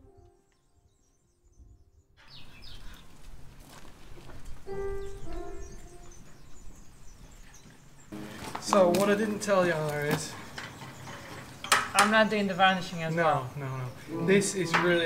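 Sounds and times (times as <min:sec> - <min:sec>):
bird chirp: 0:00.0 - 0:03.3, 0:04.5 - 0:15.0
outdoor background noise: 0:00.0 - 0:15.0
soft piano notes: 0:04.5 - 0:12.3, 0:13.9 - 0:15.0.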